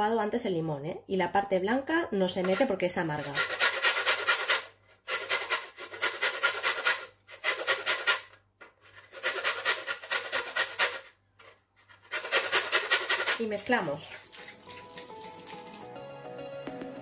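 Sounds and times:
lemon rasping on metal grater: 0:02.4 - 0:11.1, 0:11.8 - 0:15.9.

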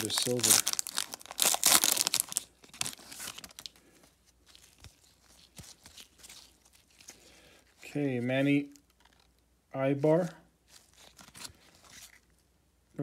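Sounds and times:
foil wrapper tearing and crinkling: 0:00.0 - 0:03.8
cards rustling and clicking: 0:00.0 - 0:07.8, 0:08.7 - 0:09.4, 0:10.1 - 0:12.4.

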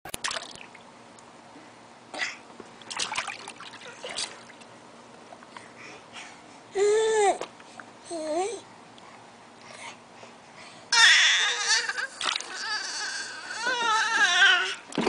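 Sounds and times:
water splashing in paddling pool: 0:02.8 - 0:04.7
baby's voice: 0:08.1 - 0:08.7.

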